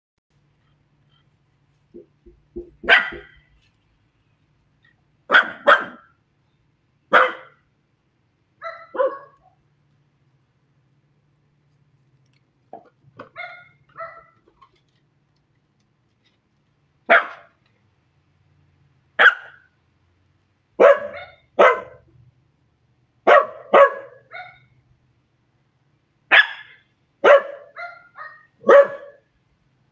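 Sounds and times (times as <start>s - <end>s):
dog barking sharply: 2.6s - 3.4s, 5.3s - 6.1s, 7.1s - 7.6s, 8.6s - 9.4s, 17.1s - 17.5s, 19.2s - 19.6s, 20.8s - 22.0s, 23.3s - 24.6s, 26.3s - 29.2s
faint barks from other dogs: 2.8s - 3.4s, 5.3s - 6.1s, 7.1s - 7.6s, 8.6s - 9.6s, 17.1s - 17.5s, 19.2s - 19.6s, 20.8s - 22.0s, 23.3s - 24.7s, 26.3s - 29.3s.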